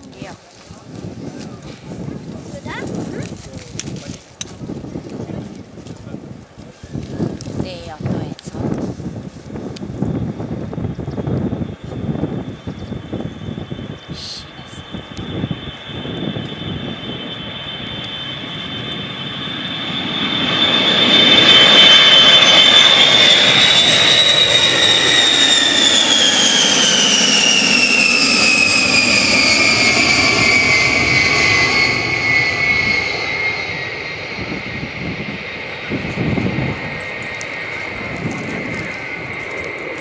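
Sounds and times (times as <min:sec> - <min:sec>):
jet bomber passing overhead: 0:08.8 - 0:40.0.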